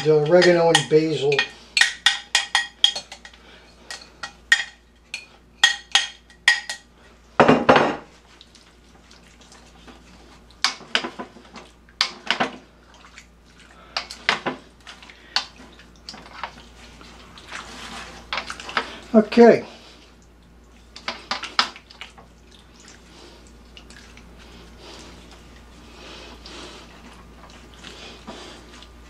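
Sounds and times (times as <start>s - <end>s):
wet stirring: 0.0s - 7.2s, 8.1s - 29.0s.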